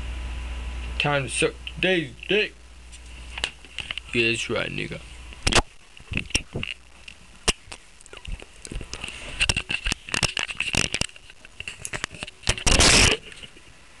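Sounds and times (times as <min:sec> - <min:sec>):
camera handling clicks and crackles: 0:05.4 - 0:13.5
loud rasping handling noise: 0:07.5 - 0:13.6.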